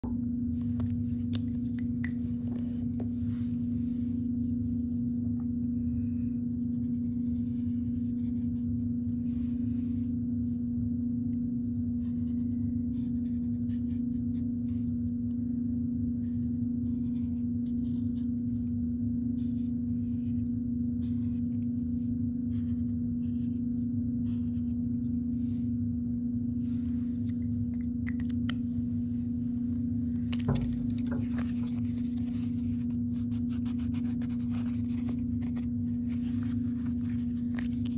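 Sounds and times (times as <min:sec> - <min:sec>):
steady low hum: 0:00.0 - 0:37.9
marker scratching on foam: 0:16.2 - 0:18.3, 0:30.5 - 0:37.9.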